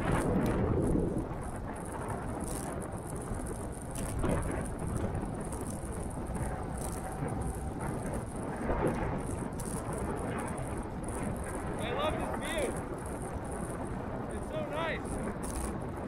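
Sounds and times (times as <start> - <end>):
small bumps and rattles: 0.0 - 16.0
tyre rumble on road: 0.0 - 16.0
wind on microphone: 0.0 - 16.0.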